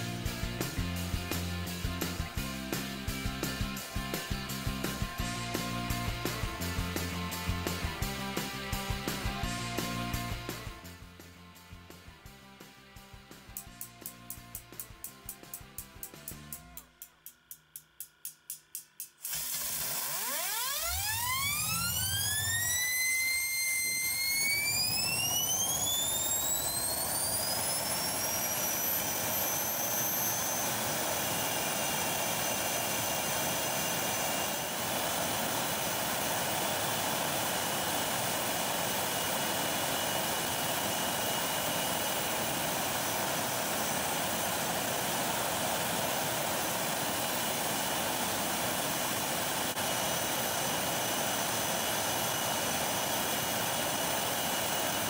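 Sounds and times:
jet engine whining: 19.2 - 55.0.

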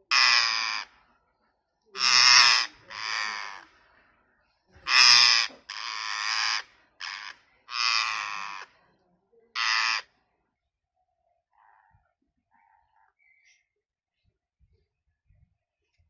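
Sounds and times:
parakeet screeching calls: 0.1 - 0.9, 2.0 - 3.6, 4.9 - 8.7, 9.6 - 10.0.

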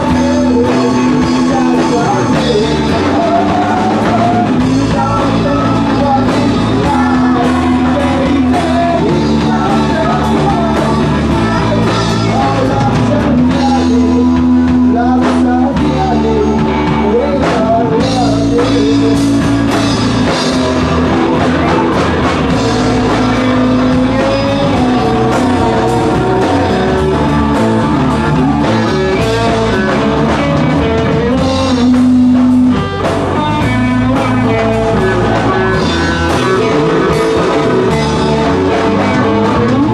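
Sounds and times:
drum kit: 0.0 - 39.9
electric guitars: 0.0 - 39.9
person singing: 0.0 - 39.9.

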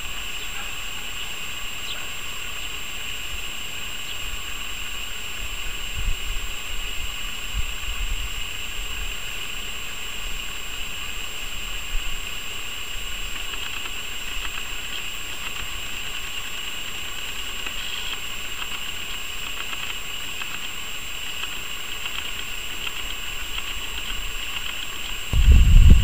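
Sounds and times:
high-pitched hiss: 0.0 - 26.0
jet engines rumbling overhead: 0.0 - 26.0.

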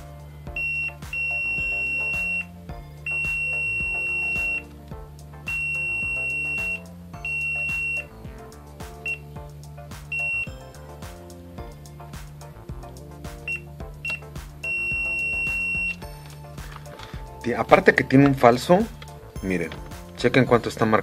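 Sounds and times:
background music: 0.0 - 21.0
multimeter continuity beeps: 0.6 - 4.7, 5.5 - 8.1, 10.1 - 10.6, 13.4 - 16.1.

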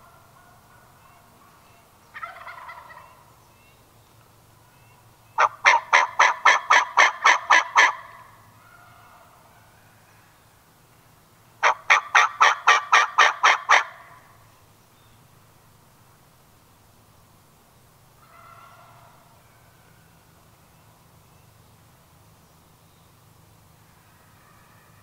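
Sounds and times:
wild turkey yelping: 0.0 - 3.3, 5.4 - 9.7, 11.6 - 14.2, 18.2 - 20.0.

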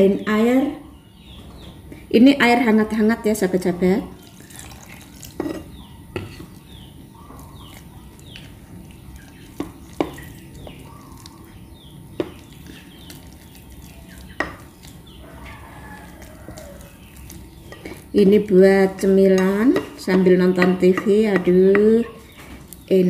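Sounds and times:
faint high chirps: 4.2 - 18.0
spoon stirring dough in bowl: 4.2 - 23.0.

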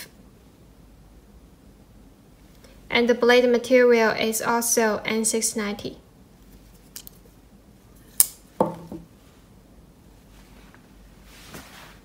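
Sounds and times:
dull knock: 8.6 - 9.1.

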